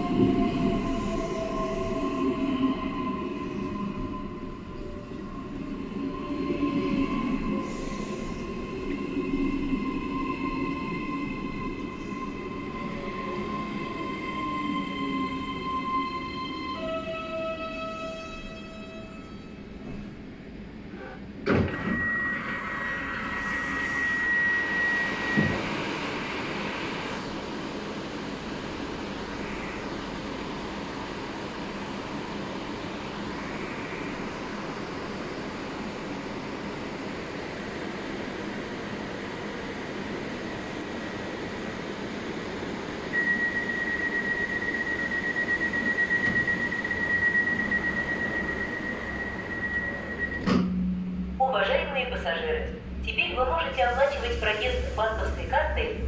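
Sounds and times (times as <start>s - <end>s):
train equipment hum: 0.0s - 56.0s
train door thud: 21.4s - 22.1s, 25.4s - 25.8s, 50.4s - 50.9s
high warning tone: 21.8s - 26.5s, 43.1s - 50.5s.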